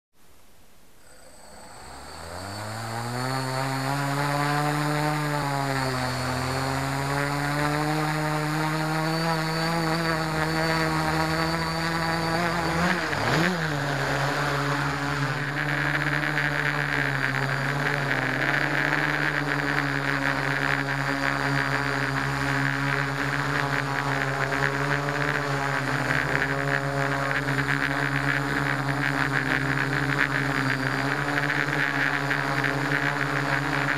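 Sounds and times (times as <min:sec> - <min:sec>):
drone motors whining: 0:01.0 - 0:33.9.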